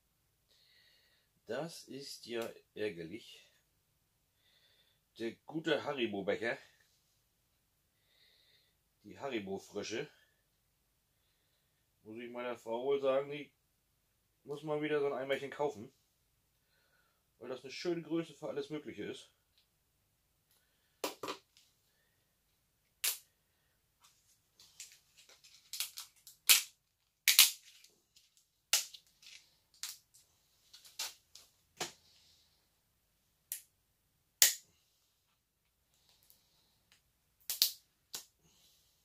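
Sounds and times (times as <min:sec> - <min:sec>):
plastic tub cracking and snapping: 0:25.6 - 0:27.8, 0:37.4 - 0:38.3.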